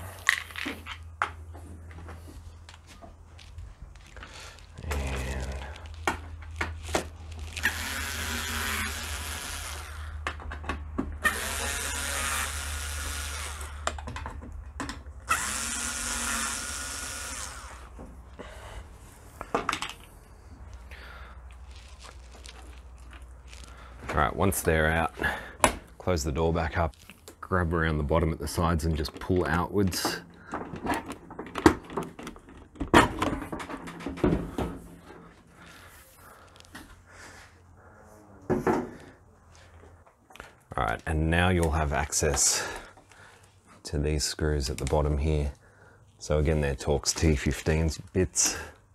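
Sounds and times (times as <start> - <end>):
electric screwdriver whirring: 7.6 - 10.2, 11.2 - 13.9, 15.3 - 17.9.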